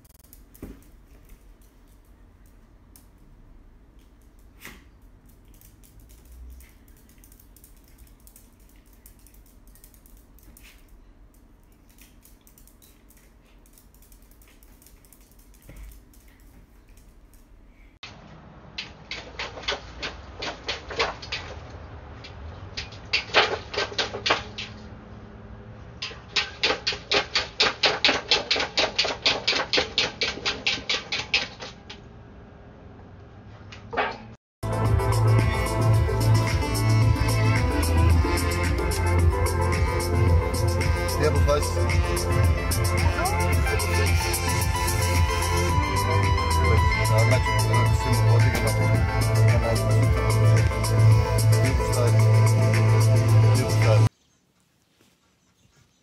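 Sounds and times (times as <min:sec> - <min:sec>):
puppy claws clicking on tiles: 0:03.9 - 0:17.6
dog paws splashing water in bowl: 0:18.8 - 0:24.8.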